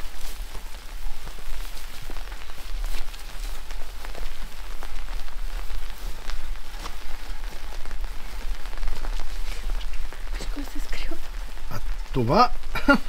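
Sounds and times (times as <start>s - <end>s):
heavy rain: 0.0s - 13.0s
raindrops striking close by: 0.0s - 13.0s.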